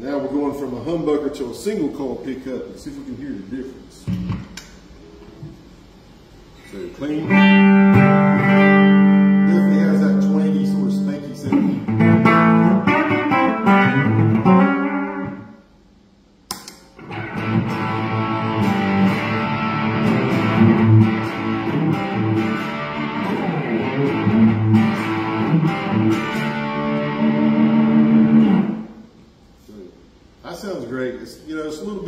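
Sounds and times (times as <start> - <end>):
twangy electric guitar: 7.2 - 10.5, 11.4 - 15.5, 17.0 - 29.0.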